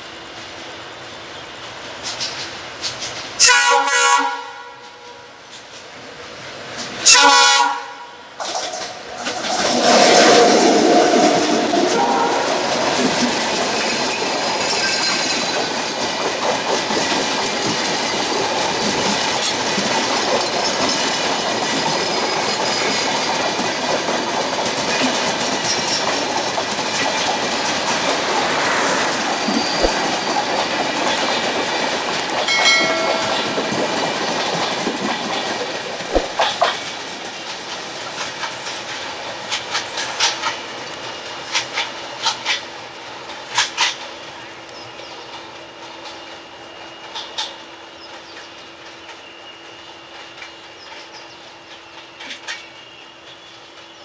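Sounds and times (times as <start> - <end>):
train coaches rolling past: 0.0 - 54.0
clickety-clack over rail joints: 1.6 - 7.5, 8.4 - 54.0.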